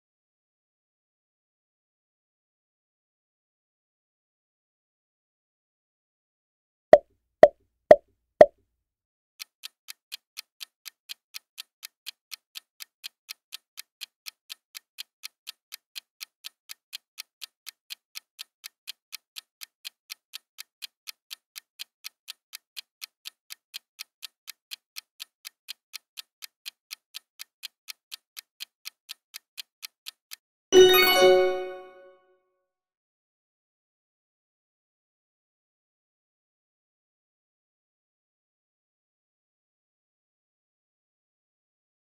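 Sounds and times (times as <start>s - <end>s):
clock-like ticking: 9.4s - 30.4s
loud ringing chime: 30.8s - 32.0s.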